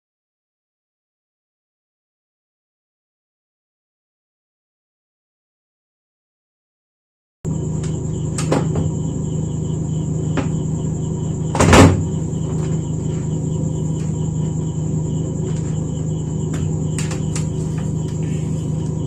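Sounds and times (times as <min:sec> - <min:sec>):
high steady whine: 0:07.5 - 0:19.0
steady low hum: 0:07.5 - 0:19.0.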